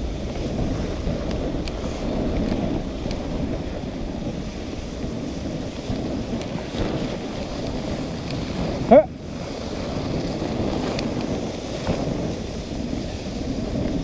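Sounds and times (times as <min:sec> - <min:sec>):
sled runners gliding on snow: 0:00.0 - 0:14.0
wind on microphone: 0:00.0 - 0:14.0
faint ticks: 0:10.2 - 0:12.0.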